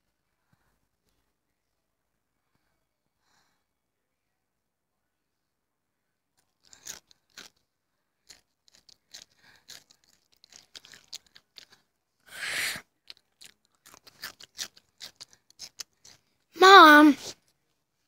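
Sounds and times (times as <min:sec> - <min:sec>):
crunchy food being chewed: 0:06.4 - 0:07.6, 0:08.2 - 0:11.9, 0:12.8 - 0:16.4.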